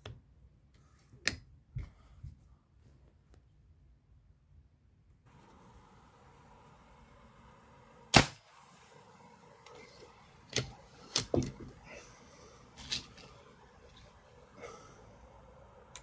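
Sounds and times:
air rifle shot: 8.1 - 9.0.

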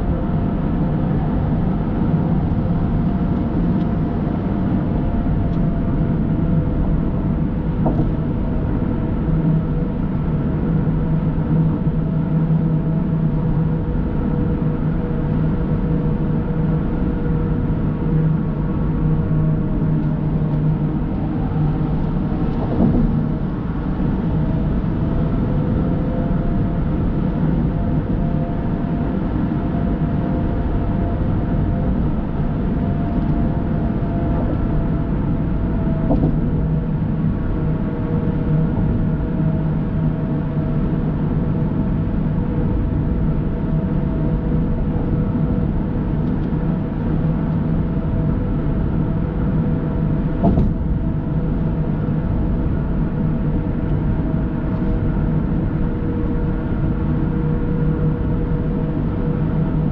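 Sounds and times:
car cruising at highway speed: 0.1 - 30.5, 31.2 - 41.5
brief knock: 7.8 - 8.1, 36.1 - 36.4, 50.4 - 50.8.

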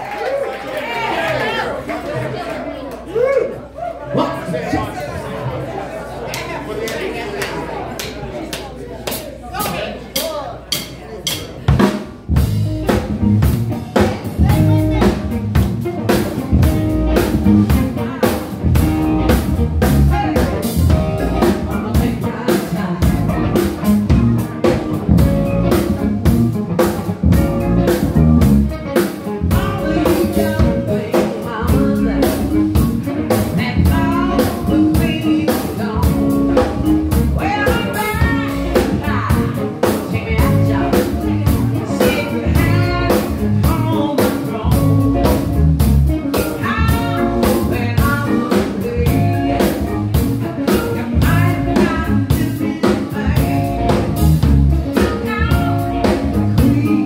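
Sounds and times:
drum kit beat: 9.0 - 57.0
bass guitar: 10.6 - 57.0
person singing: 17.7 - 26.0, 27.0 - 57.0.

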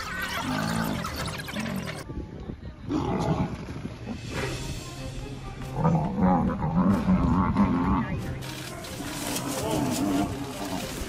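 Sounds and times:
animals growling and bellowing: 0.0 - 2.1, 2.8 - 4.7, 5.6 - 11.0
background music: 2.8 - 11.0.

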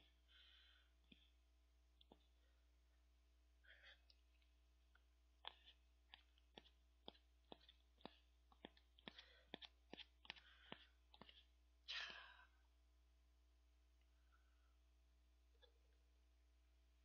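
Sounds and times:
short breath: 0.3 - 1.3, 10.3 - 12.6.

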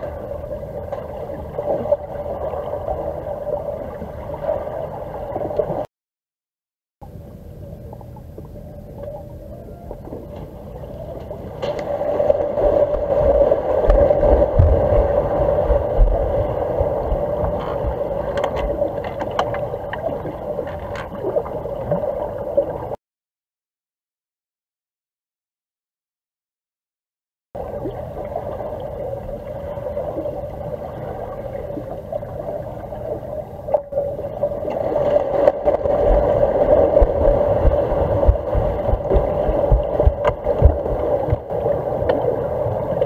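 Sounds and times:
muffled underwater hum: 0.0 - 5.9, 7.0 - 23.0, 27.6 - 43.0
water gurgling: 0.0 - 5.9, 7.0 - 23.0, 27.6 - 43.0
low thuds: 12.6 - 15.2, 37.0 - 41.5.

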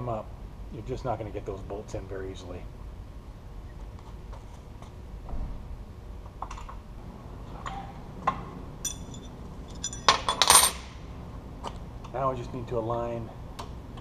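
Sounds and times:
ringing metal taps: 8.8 - 10.7
metal clatter: 8.8 - 10.9
metal tools clicking and clinking: 8.8 - 10.9.

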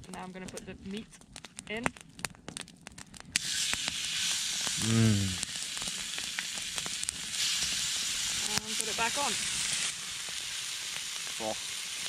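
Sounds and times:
meat sizzling in a pan: 3.3 - 12.0
person humming: 4.8 - 5.4.

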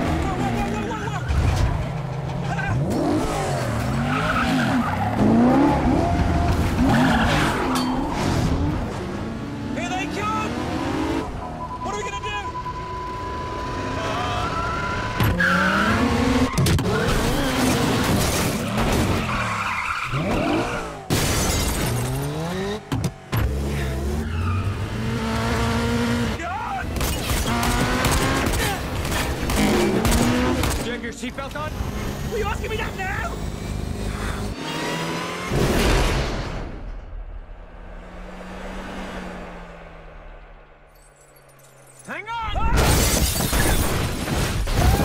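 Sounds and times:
engines revving: 0.0 - 40.9
tyres skidding: 0.0 - 45.0
car engine revving hard: 23.4 - 26.4
loud crash: 35.5 - 38.0.

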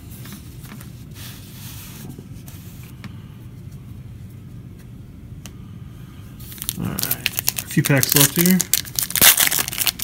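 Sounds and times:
low room hum: 0.0 - 10.0.

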